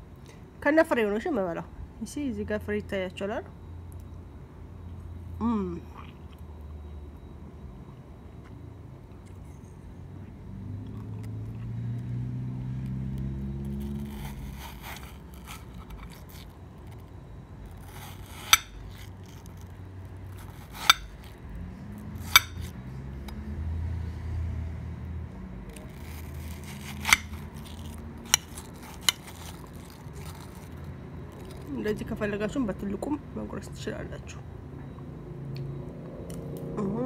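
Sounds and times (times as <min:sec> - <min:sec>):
spoon scraping watermelon flesh: 0:12.8 - 0:21.4, 0:22.0 - 0:22.8, 0:25.7 - 0:31.8.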